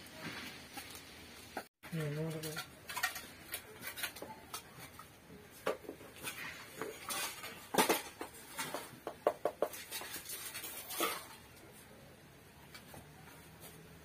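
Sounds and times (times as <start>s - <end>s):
steel plates clinking and scraping: 2.3s - 5.1s, 6.1s - 9.0s, 9.7s - 11.5s.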